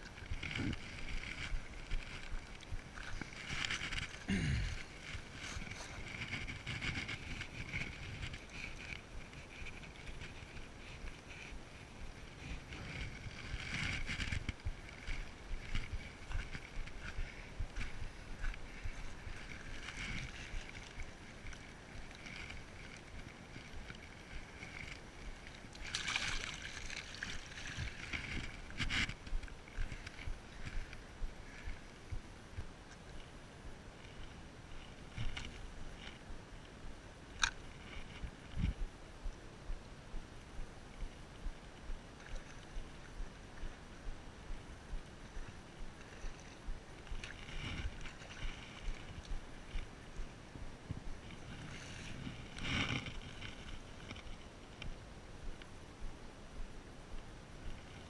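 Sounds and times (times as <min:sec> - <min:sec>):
river water sloshing and splashing: 0:00.0 - 0:32.1, 0:41.0 - 0:54.9
rustling: 0:00.0 - 0:32.1, 0:44.5 - 0:50.4
faint steady hiss: 0:00.0 - 0:58.0.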